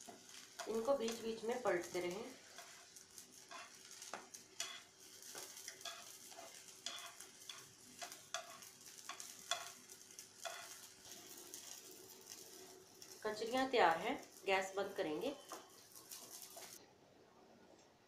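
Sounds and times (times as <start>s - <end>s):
metal tongs tapping a pan: 0.0s - 2.9s, 3.5s - 11.8s
slices sizzling in oil: 0.0s - 16.8s.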